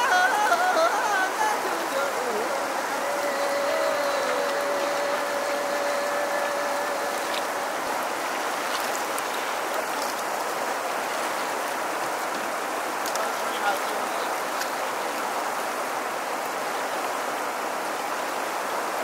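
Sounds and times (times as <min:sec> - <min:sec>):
held tone: 0:00.0 - 0:07.8
river water rushing: 0:00.0 - 0:19.0.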